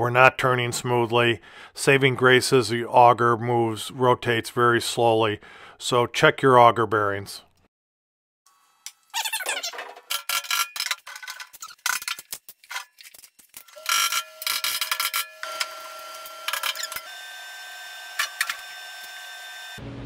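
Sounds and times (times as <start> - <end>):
metal tools clicking and tapping: 9.8 - 15.3.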